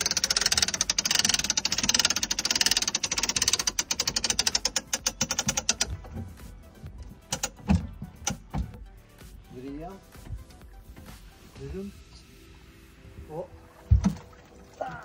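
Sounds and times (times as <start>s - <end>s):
davit mechanism clicking: 0.0s - 8.7s.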